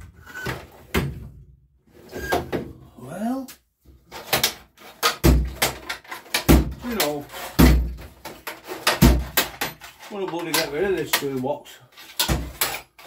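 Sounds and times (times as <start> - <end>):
tool box clicks and rattles: 4.1 - 13.0.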